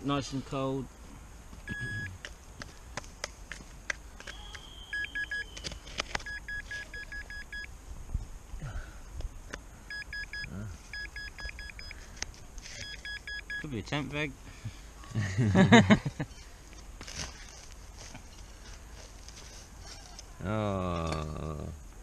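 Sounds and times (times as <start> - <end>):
metal detector beeping: 1.7 - 2.2, 4.2 - 7.7, 9.9 - 12.0, 12.7 - 13.7.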